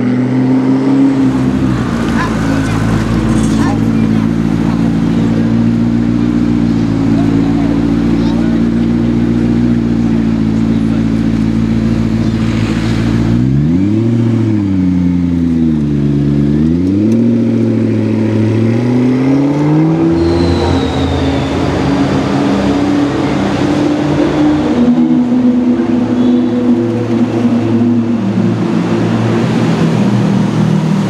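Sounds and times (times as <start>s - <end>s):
sports car engine revving: 0.0s - 31.0s.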